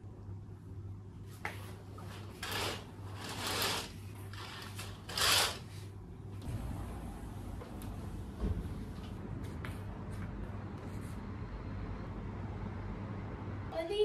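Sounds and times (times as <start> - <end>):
steady low hum: 0.0 - 14.0
curtain fabric sliding along rail: 2.0 - 5.9.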